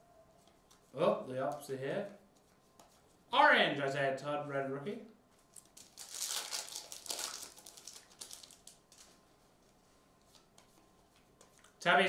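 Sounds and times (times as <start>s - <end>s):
foil wrapper tearing and crinkling: 5.6s - 9.2s.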